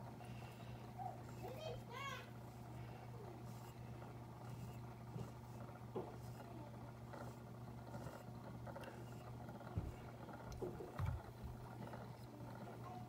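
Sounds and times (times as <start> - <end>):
low motor hum: 0.0 - 13.0.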